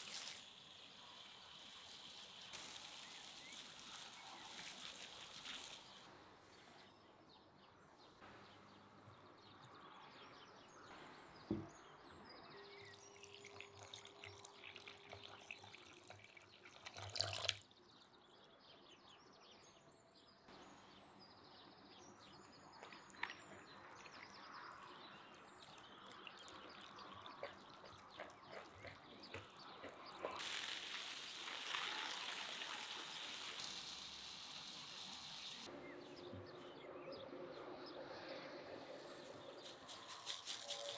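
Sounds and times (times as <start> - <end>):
liquid pouring: 0.0 - 6.0, 12.8 - 17.7, 22.8 - 35.7
rustling hiss: 0.0 - 6.1, 30.3 - 35.7.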